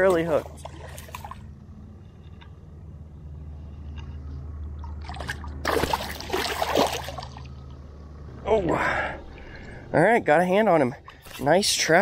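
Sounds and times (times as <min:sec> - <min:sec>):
low steady hum: 0:00.0 - 0:12.0
fish splashing at surface: 0:05.0 - 0:07.5.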